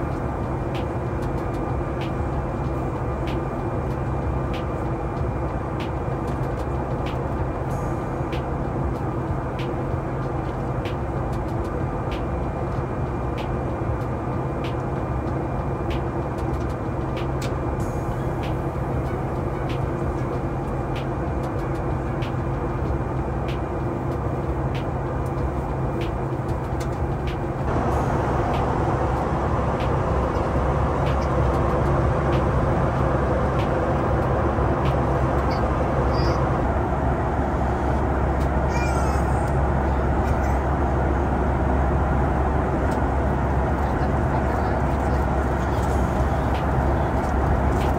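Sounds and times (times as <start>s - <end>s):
aircraft engine and airflow drone: 0.0s - 47.9s.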